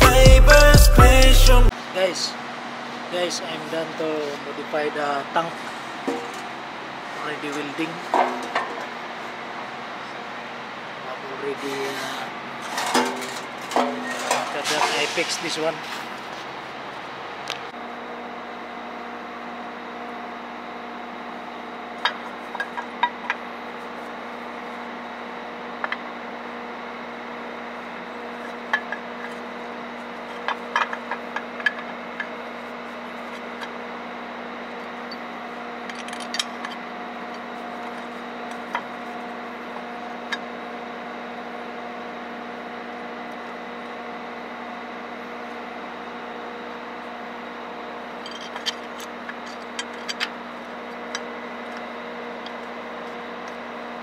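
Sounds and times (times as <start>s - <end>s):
steady machine hum: 0.0s - 54.0s
metal parts clinking and knocking: 35.8s - 36.8s, 48.2s - 50.4s.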